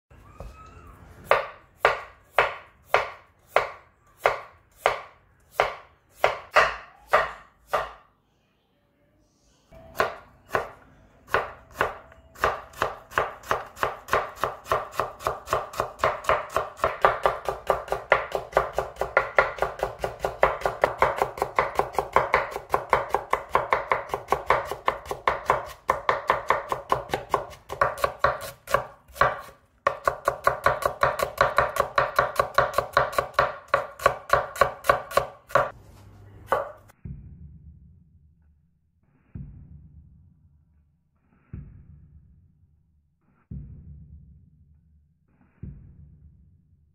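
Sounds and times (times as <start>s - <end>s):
knife chopping on wooden board: 1.3s - 8.0s, 10.0s - 35.8s, 36.5s - 36.8s.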